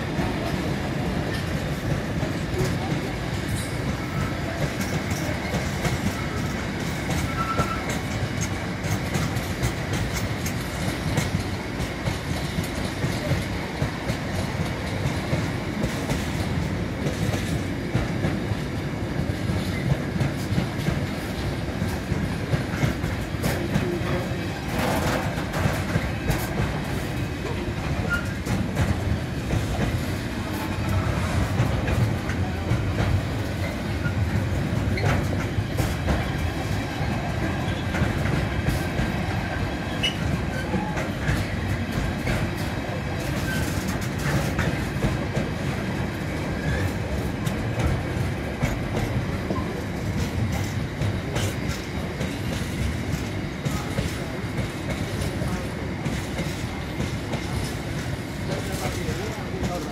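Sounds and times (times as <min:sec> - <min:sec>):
steel wheels rumbling on rail: 0:00.0 - 0:59.9
wheels clicking over rail joints: 0:19.2 - 0:45.7.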